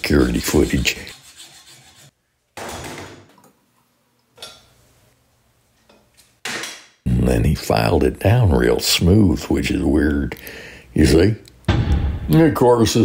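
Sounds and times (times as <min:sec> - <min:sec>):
hacksaw rasping on metal: 0:00.2 - 0:02.1.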